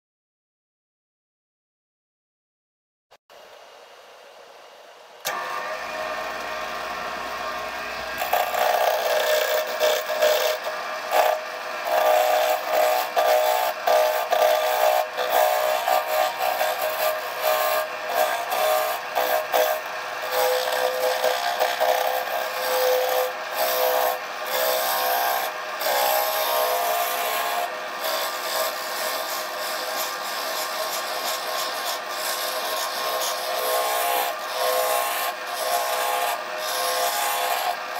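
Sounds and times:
turning tool scraping wood: 5.2 - 37.9
wood lathe motor hum: 5.2 - 37.9.

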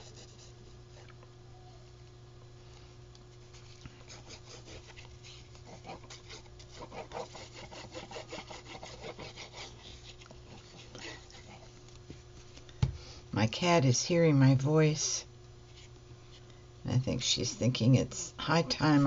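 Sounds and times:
glue nozzle scratching paper: 4.1 - 10.0.

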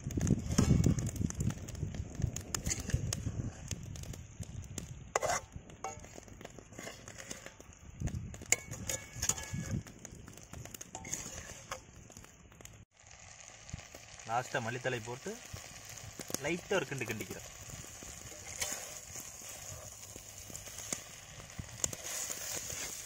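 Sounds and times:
pan crackling: 0.0 - 23.0
metal ladle scraping iron pan: 5.1 - 7.6, 8.5 - 9.8, 10.9 - 11.8, 18.0 - 21.0.

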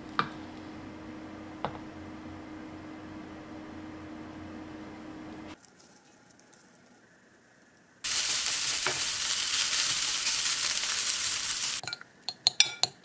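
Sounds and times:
fried rice sizzling in a pan: 8.0 - 11.8.

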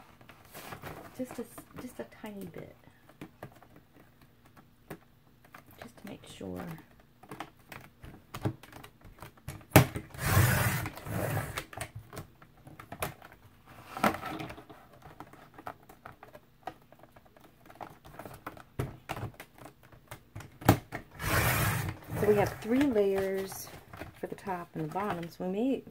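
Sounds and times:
cardboard rustling and clicks: 0.1 - 25.6
trimmer blade scraping along rail: 21.2 - 22.6.

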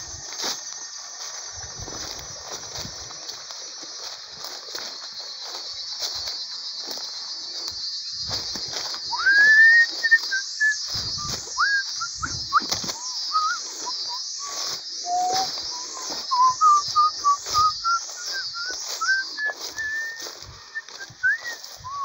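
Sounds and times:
footsteps rustling through leaves: 0.0 - 22.0
high insect chorus: 0.0 - 22.0
clear whistled notes: 7.7 - 22.0.

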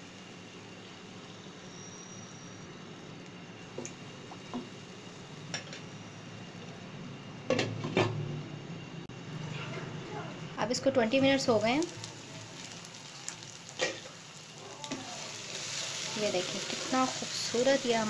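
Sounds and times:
broth simmering: 9.1 - 18.0
faint steady hiss: 10.0 - 18.0.

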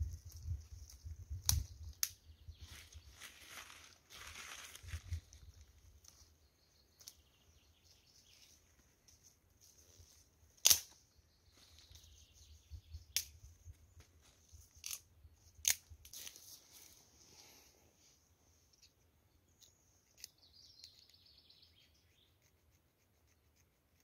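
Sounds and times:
twigs and paper rustling: 0.0 - 6.4, 13.0 - 17.1
dry twigs snapping: 1.4 - 2.2, 10.6 - 11.0, 13.1 - 13.4, 14.7 - 16.4.

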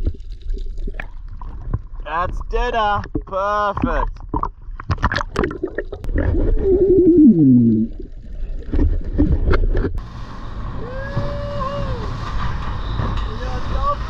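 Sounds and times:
low underwater rumble: 0.0 - 10.0
underwater bubbling: 0.0 - 10.0
underwater clicks: 2.9 - 6.8.

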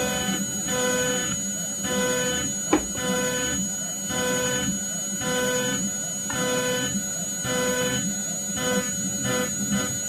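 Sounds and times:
router spindle high whine: 0.0 - 10.0
mid-pitched motor tone: 1.9 - 4.6.

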